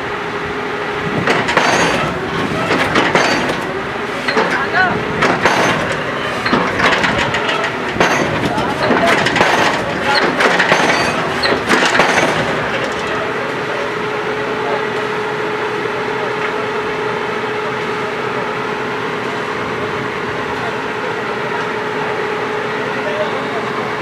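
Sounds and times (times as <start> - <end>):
drilling rig running: 0.0 - 21.7
constant hum: 0.0 - 24.0
metallic clanking: 1.2 - 13.3.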